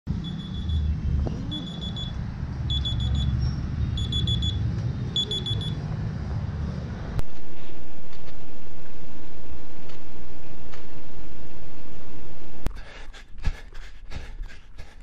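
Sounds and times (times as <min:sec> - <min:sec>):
steady low rumble: 0:00.1 - 0:12.7
rapid high-pitched alarm beeps: 0:00.2 - 0:04.6, 0:05.2 - 0:05.8.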